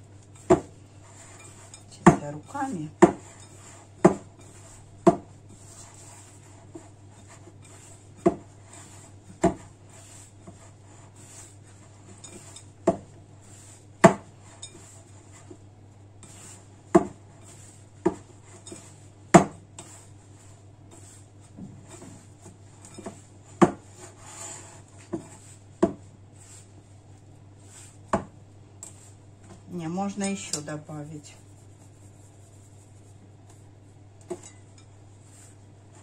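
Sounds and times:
mixing bowl knocking on worktop: 0.4 - 0.8, 2.0 - 3.3, 4.0 - 4.4, 5.0 - 5.3, 8.2 - 8.5, 9.3 - 9.7, 12.8 - 13.2, 14.0 - 14.3, 16.9 - 17.2, 18.0 - 18.3, 19.3 - 19.6, 22.9 - 23.9, 25.1 - 26.1, 28.1 - 28.4.

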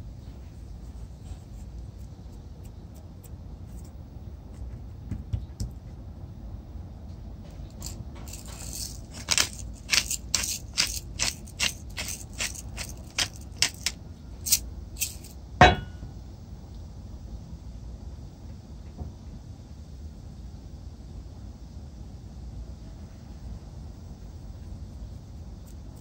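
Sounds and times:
pepper grinder crunching: 7.7 - 15.3
sharp knock: 15.6 - 16.1.

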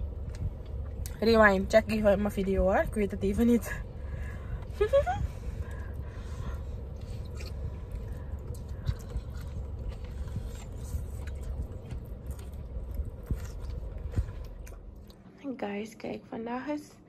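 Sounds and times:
steady low hum: 0.0 - 17.0
person chewing food: 5.8 - 15.2.

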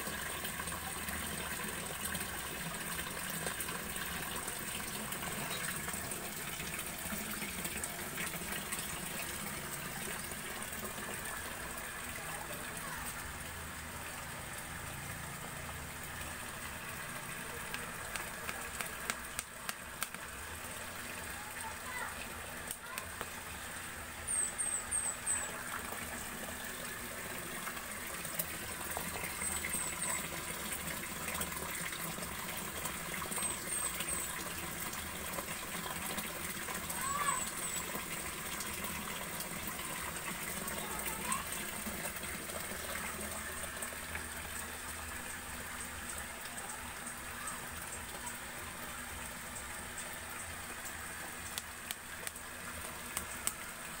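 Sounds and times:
water rushing into tank: 0.0 - 54.0.

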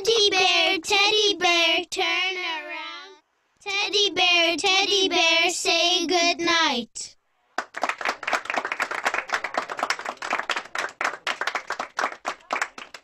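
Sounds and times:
audience clapping: 7.6 - 13.0.

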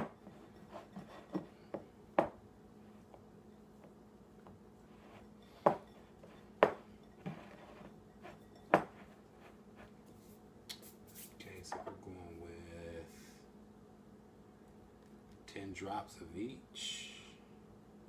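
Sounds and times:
utensil tapping glass bowl: 5.2 - 9.2.

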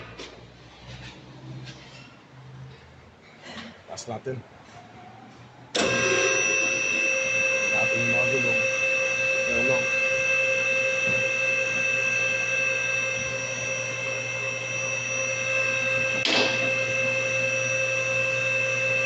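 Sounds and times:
hydraulic pump motor whining: 5.7 - 19.0.

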